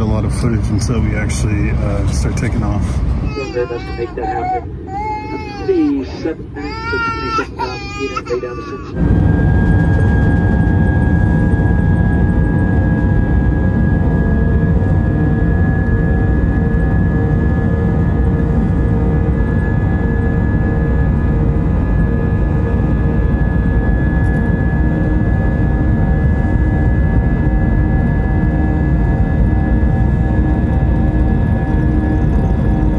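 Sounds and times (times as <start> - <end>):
high engine whine: 0.0 - 32.9
jet engines roaring: 0.0 - 32.9.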